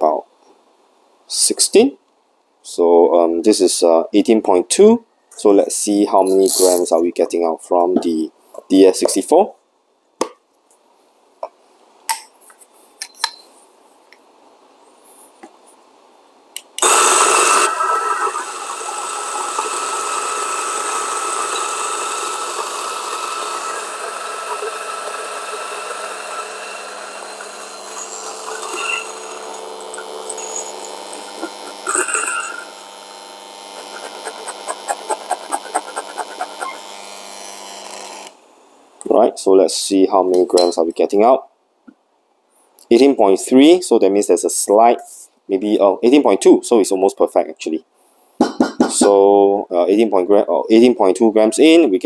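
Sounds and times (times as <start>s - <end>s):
grinder burrs ticking: 16.8s - 32.8s, 33.7s - 38.3s
coffee grinder grinding beans: 16.8s - 38.4s.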